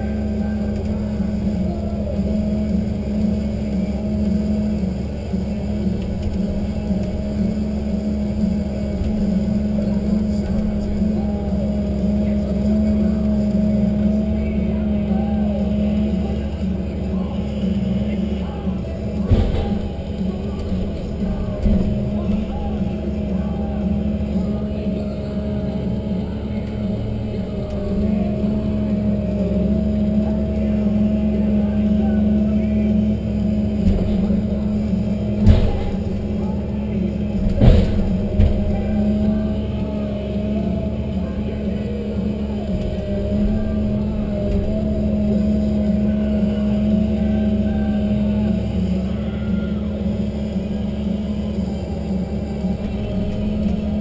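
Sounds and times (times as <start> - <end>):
constant whine: 0.0 - 54.0
diesel engine and hydraulics running: 0.0 - 54.0.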